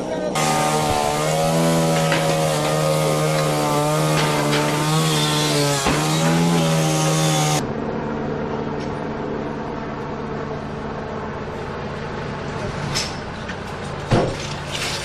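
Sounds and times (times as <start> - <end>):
chainsaw cutting timber: 0.4 - 7.6
vehicle engines idling: 7.6 - 14.1.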